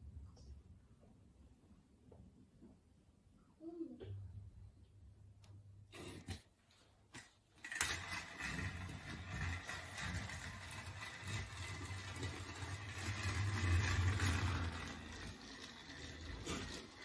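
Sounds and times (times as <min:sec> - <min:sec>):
toy train motor whirring: 0:07.2 - 0:17.0.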